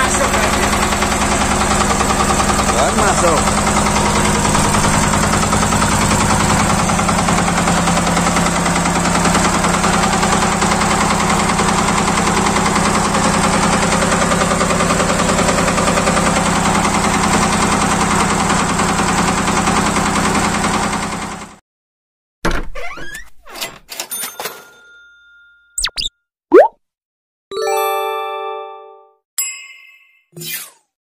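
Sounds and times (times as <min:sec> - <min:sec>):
diesel generator engine running: 0:00.0 - 0:21.6.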